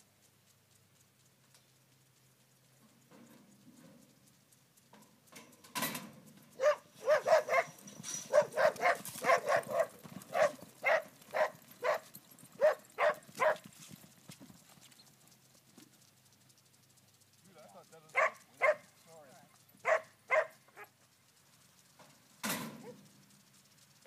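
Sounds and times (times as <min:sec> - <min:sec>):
metal gate clanging open: 0:05.4 - 0:06.3, 0:07.2 - 0:08.7, 0:22.4 - 0:23.0
dog barking sharply: 0:06.6 - 0:12.0, 0:12.6 - 0:13.6, 0:18.1 - 0:18.9, 0:19.8 - 0:20.9.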